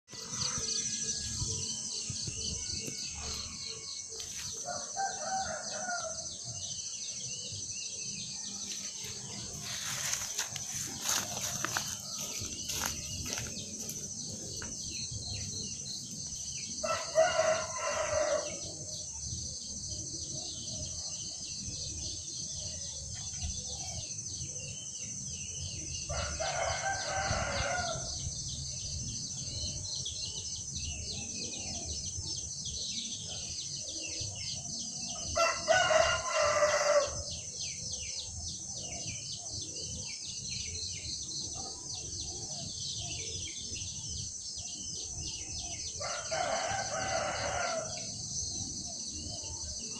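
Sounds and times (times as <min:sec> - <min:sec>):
rooster crowing: 0:02.8 - 0:06.2, 0:16.8 - 0:18.7, 0:26.1 - 0:28.1, 0:35.4 - 0:37.2, 0:46.0 - 0:48.1.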